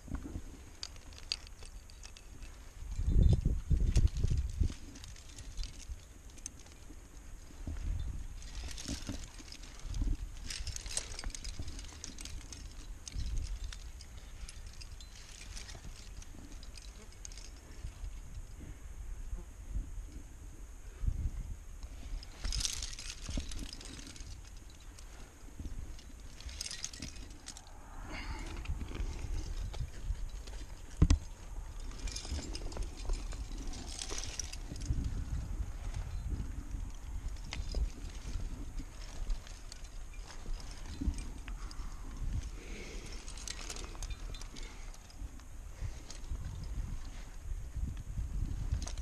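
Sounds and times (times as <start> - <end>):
climbing gear clinking: 0.0 - 18.8, 21.2 - 49.0
wind rumble on microphone: 0.0 - 49.0.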